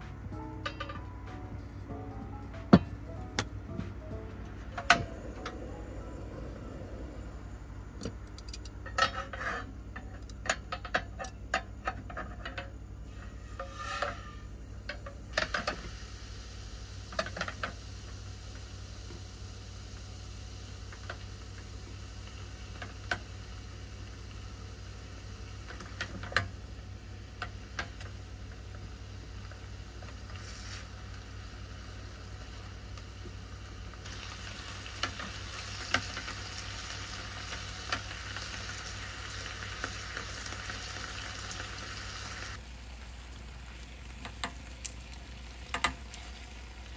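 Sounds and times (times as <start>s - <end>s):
meat sizzling in a frying pan: 13.0s - 46.9s.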